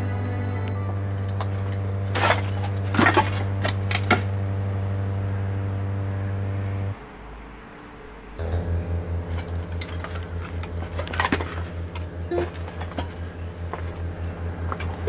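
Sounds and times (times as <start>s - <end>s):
pulsing low tone: 0.0s - 3.6s, 4.2s - 7.0s, 8.4s - 15.0s
low drone of background music: 0.0s - 15.0s
wooden debris cracking underfoot: 1.3s - 4.4s, 9.2s - 15.0s.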